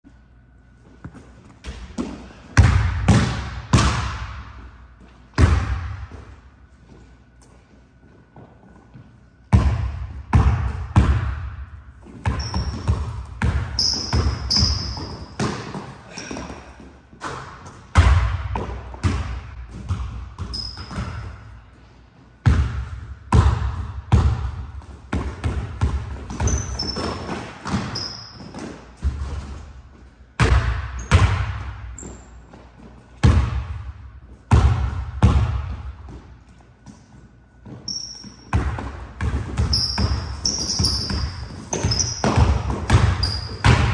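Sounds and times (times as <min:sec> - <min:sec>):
sneakers squeaking on wooden floor: 0:12.0 - 0:17.8, 0:20.4 - 0:21.4, 0:26.1 - 0:29.8, 0:31.9 - 0:33.1, 0:36.2 - 0:43.9
basketball bouncing on hardwood: 0:12.2 - 0:15.9, 0:38.5 - 0:43.9.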